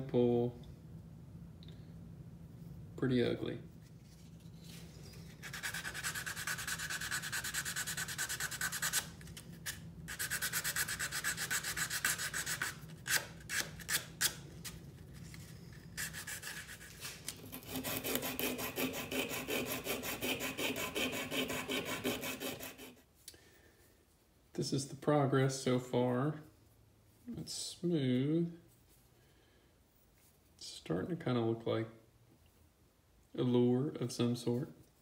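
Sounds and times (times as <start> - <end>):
hand sanding wood: 5.4 - 14.4, 16.0 - 23.0.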